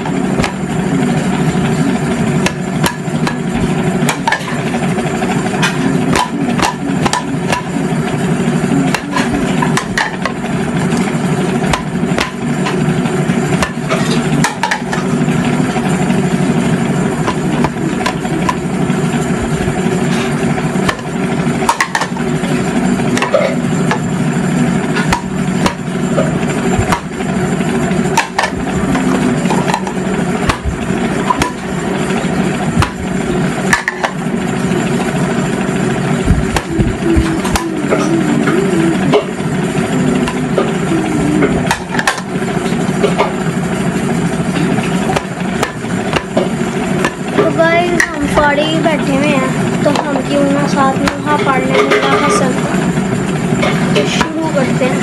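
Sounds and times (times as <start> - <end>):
steady background hum: 0.0 - 55.0
utensils clinking and knocking: 44.5 - 53.0.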